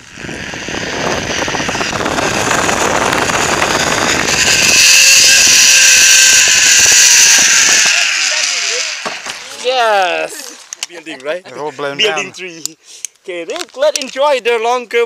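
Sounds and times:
wind rushing past microphone: 0.0s - 9.0s
zipline pulleys whirring on cable: 0.0s - 9.8s
high whine: 0.0s - 10.9s.

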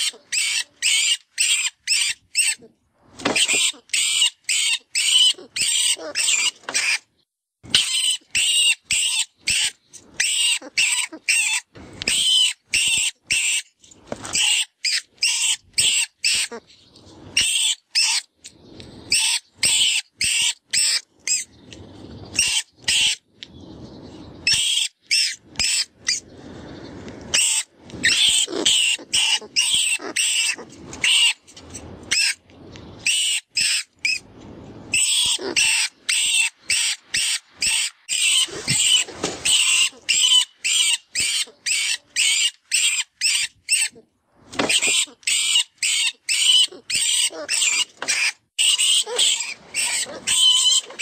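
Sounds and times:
rodent distress squeaks: 0.0s - 2.7s, 3.4s - 7.0s, 14.3s - 16.6s, 24.4s - 26.2s, 27.4s - 31.4s, 34.9s - 44.0s, 44.7s - 51.0s.

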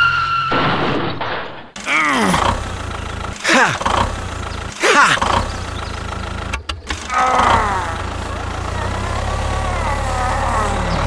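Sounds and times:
tractor engine humming: 1.8s - 11.0s
downward-sliding engine whine: 2.2s - 11.0s.

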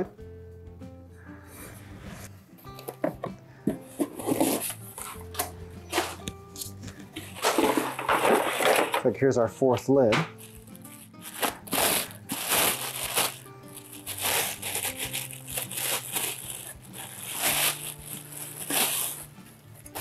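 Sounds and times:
soft background music: 0.0s - 20.0s
packaging crinkling and rustling: 3.9s - 5.2s, 5.9s - 6.3s, 7.2s - 9.1s, 10.3s - 19.3s.

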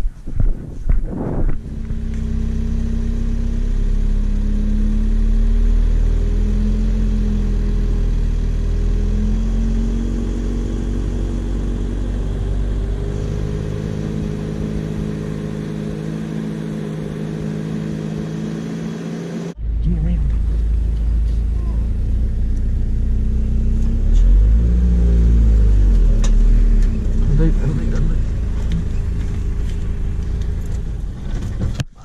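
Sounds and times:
vehicle engine rumbling: 0.0s - 32.0s.

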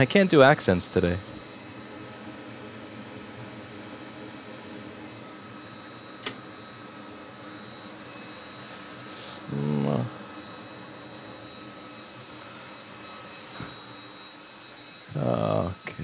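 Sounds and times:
fan-like hiss: 0.0s - 16.0s
sharp click: 6.2s - 6.4s
man humming: 15.1s - 16.0s.

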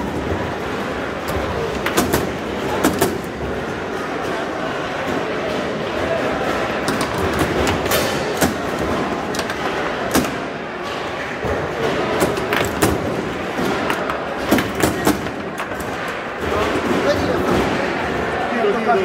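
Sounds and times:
hall background noise: 0.0s - 19.0s
foosball ball clacking: 1.2s - 3.5s, 6.8s - 10.5s, 11.9s - 17.8s.

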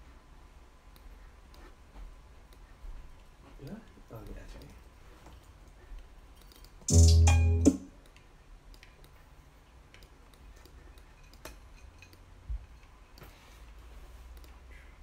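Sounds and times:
bass-heavy music burst: 6.9s - 7.8s.

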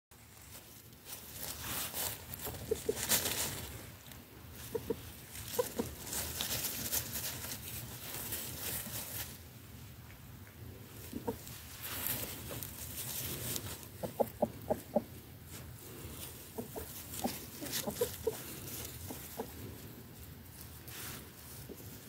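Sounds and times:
rustling and pattering: 0.2s - 22.0s
chickens clucking: 1.6s - 7.1s, 10.1s - 21.2s.

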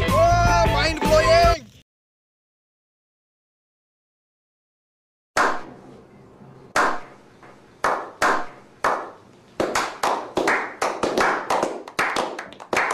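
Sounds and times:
hands clapping: 6.8s - 12.9s.

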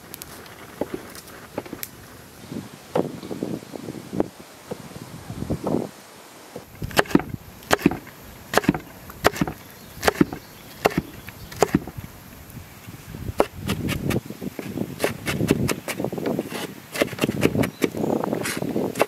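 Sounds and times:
knife chopping on wooden board: 8.6s - 11.9s.

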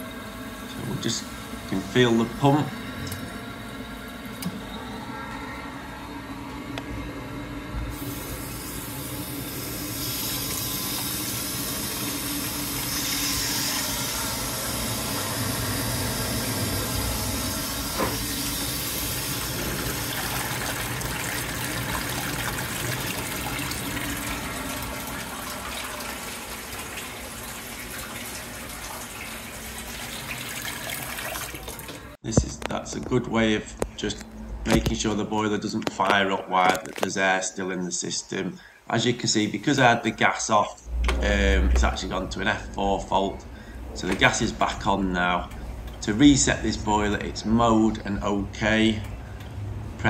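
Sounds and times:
tap water running into sink: 8.0s - 32.2s.

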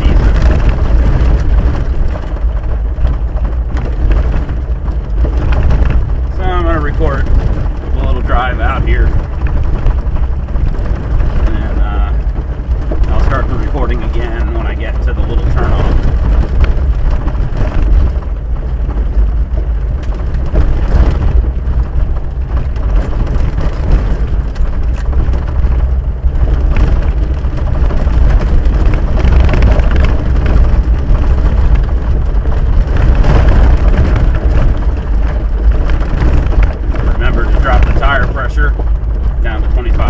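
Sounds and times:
car body knocks and rattles: 0.0s - 40.0s
engine and tyre rumble: 0.0s - 40.0s.

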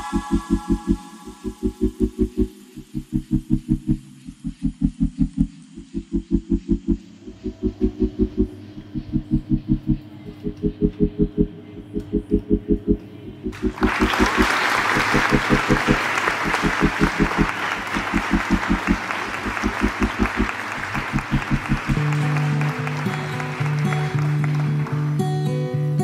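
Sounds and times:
background music with quick beat: 0.0s - 24.5s
crowd applauding and cheering: 13.5s - 25.6s.

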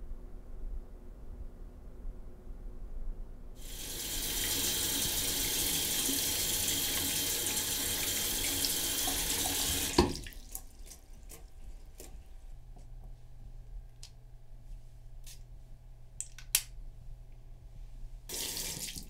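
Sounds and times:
tap water running onto hands: 3.6s - 11.4s, 18.3s - 19.0s.

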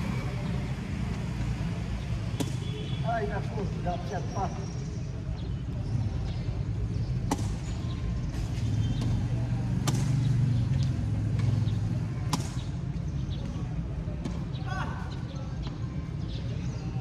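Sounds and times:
tennis balls hit by rackets: 2.3s - 2.7s, 7.0s - 14.7s.

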